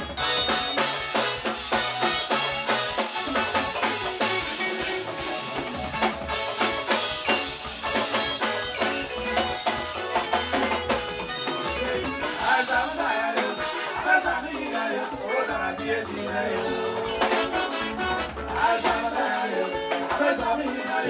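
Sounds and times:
drum kit beat: 0:00.0 - 0:21.0
electric guitars: 0:00.0 - 0:21.0
live band music: 0:00.0 - 0:21.0
man singing: 0:04.3 - 0:05.4, 0:11.5 - 0:17.6, 0:18.5 - 0:21.0.

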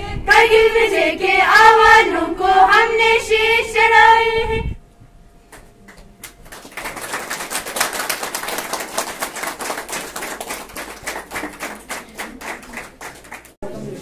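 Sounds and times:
small group clapping: 0:05.5 - 0:13.6.

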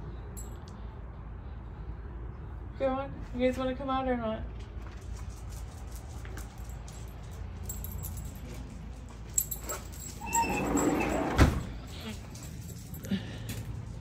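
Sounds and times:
light metallic jingling: 0:00.2 - 0:00.9, 0:05.5 - 0:14.0
door squeak and rattle: 0:10.0 - 0:11.8.

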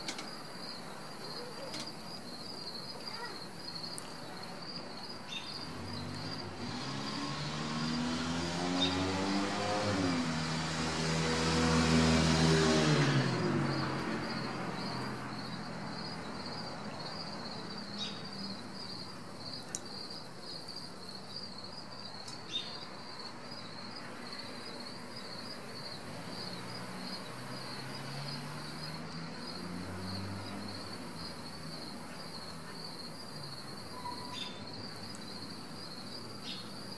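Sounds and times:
insects chirping: 0:00.0 - 0:11.0, 0:11.9 - 0:36.9
vehicle passing by: 0:05.5 - 0:19.1, 0:23.8 - 0:36.9.

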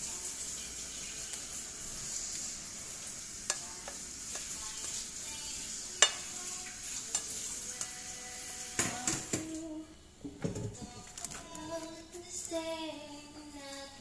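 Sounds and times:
steady high hiss: 0:00.0 - 0:09.9
spoon clacking on plate: 0:06.0 - 0:06.3, 0:07.1 - 0:07.9
plastic spoon stirring on plate: 0:06.0 - 0:08.0.

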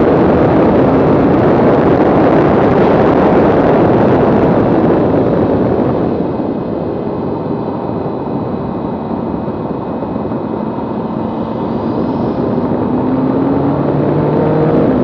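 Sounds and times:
wind and tyre rush: 0:00.0 - 0:15.0
faint car engine: 0:06.8 - 0:15.0.

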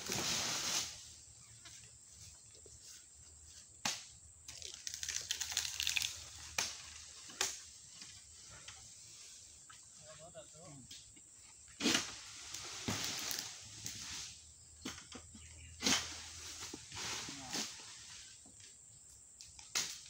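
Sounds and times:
fronds rustling: 0:00.0 - 0:14.4
crackling of cut fronds: 0:03.8 - 0:08.7, 0:11.8 - 0:14.3.

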